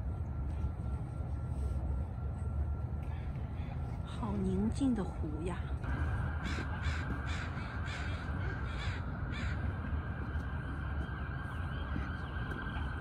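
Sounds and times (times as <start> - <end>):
steady low rumble: 0.0 - 13.0
crow cawing: 6.4 - 9.6.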